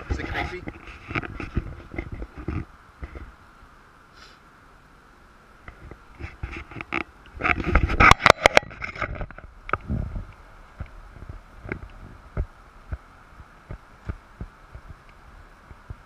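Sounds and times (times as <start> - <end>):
faint city hum: 0.0 - 16.0
camera clatter and knocks: 0.6 - 3.2, 5.7 - 9.9.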